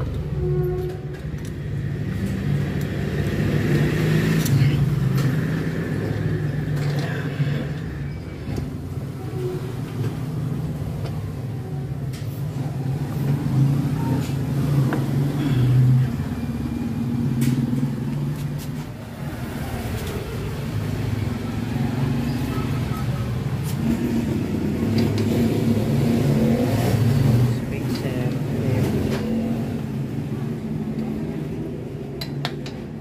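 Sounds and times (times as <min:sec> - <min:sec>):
vehicle engine rumbling: 0:00.0 - 0:33.0.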